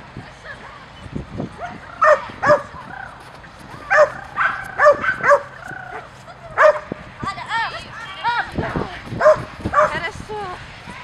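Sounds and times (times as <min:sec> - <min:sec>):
small dog barking: 0:01.6 - 0:02.7, 0:03.9 - 0:06.9, 0:09.2 - 0:10.0.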